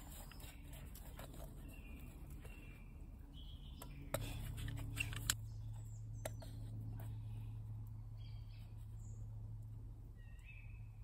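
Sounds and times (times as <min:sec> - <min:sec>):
low steady hum: 0:00.0 - 0:11.0
bird chirping faintly: 0:10.1 - 0:11.0.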